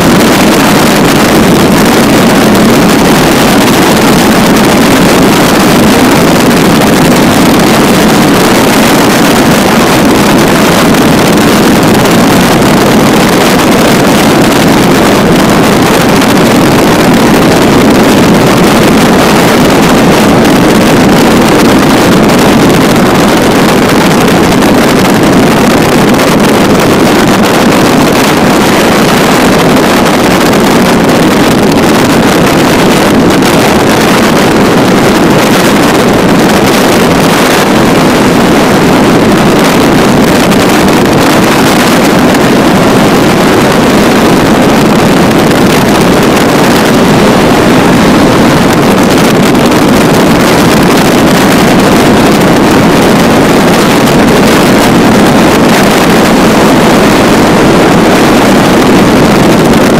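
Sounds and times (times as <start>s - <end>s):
propeller plane engine drone: 0.0s - 59.9s
wind on microphone: 0.0s - 59.9s.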